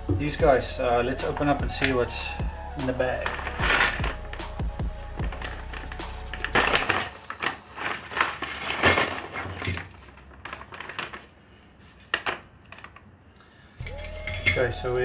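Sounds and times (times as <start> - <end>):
metal hardware clinking: 3.2 - 4.4, 5.7 - 10.2, 13.8 - 14.9
plastic bag crinkling: 5.4 - 11.6.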